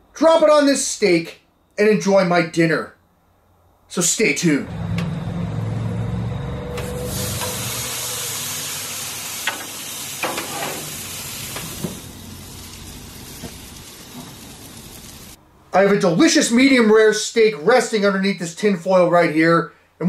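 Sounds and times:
low hum: 0:04.6 - 0:09.4
steak sizzling: 0:06.8 - 0:15.4.

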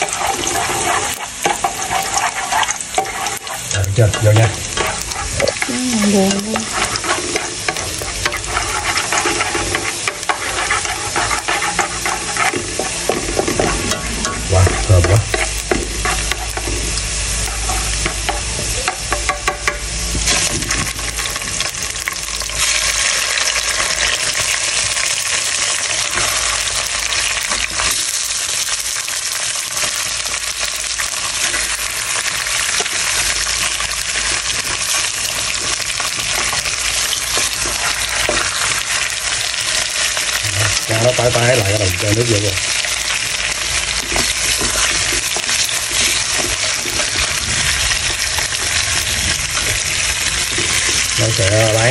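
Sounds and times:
chopsticks tapping and scraping a pot: 0:00.0 - 0:05.7, 0:06.3 - 0:22.3, 0:26.0 - 0:28.0, 0:34.2 - 0:47.3
shallots and garlic sizzling in oil: 0:00.0 - 0:51.9.

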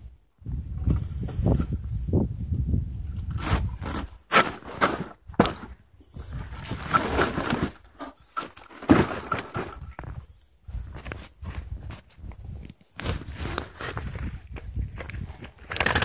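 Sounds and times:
mesh bag of firewood scraping: 0:03.3 - 0:09.9.

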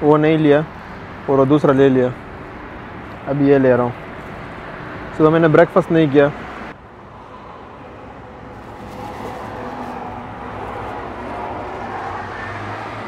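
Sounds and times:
road noise: 0:00.0 - 0:13.0
vehicle engine rumble: 0:00.0 - 0:13.0.

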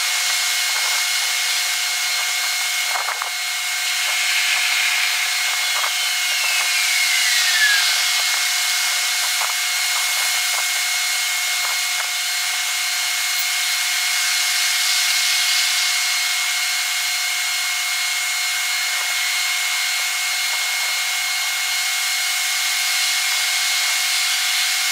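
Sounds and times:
whine falling in pitch: 0:02.1 - 0:13.4
thin high-pitched hiss: 0:03.7 - 0:09.4.

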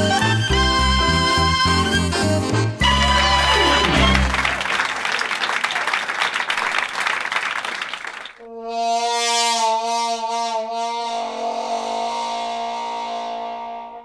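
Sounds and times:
wind instrument long note: 0:00.1 - 0:04.8, 0:08.4 - 0:14.0.

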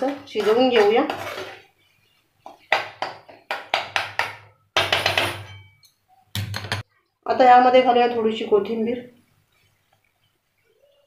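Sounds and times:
spatula scraping metal pan: 0:00.0 - 0:01.7.

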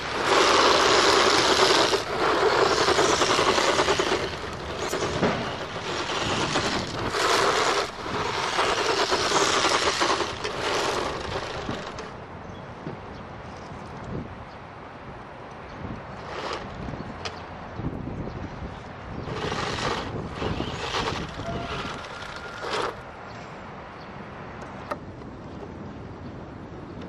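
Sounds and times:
electric motor and gearbox whining: 0:00.0 - 0:12.2, 0:19.3 - 0:23.0
tyres scrabbling on gravel: 0:00.0 - 0:12.3, 0:16.1 - 0:17.0, 0:19.2 - 0:23.2.

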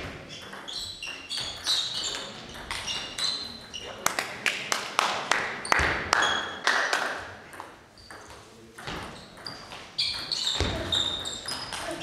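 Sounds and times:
table tennis ball hits: 0:05.7 - 0:12.0.

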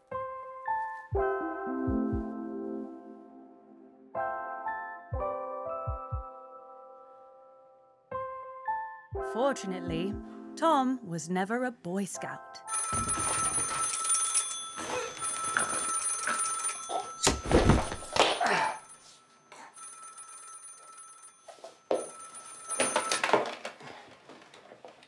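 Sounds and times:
telephone bell ringing: 0:12.7 - 0:23.7
heavy thud of body on floor: 0:17.3 - 0:18.3.

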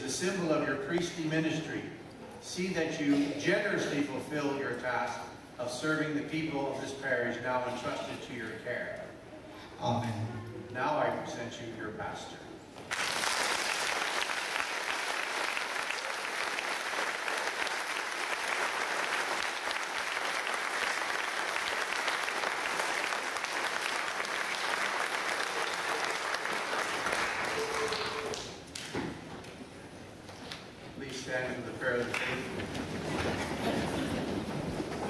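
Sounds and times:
congregation applauding: 0:12.9 - 0:28.6.

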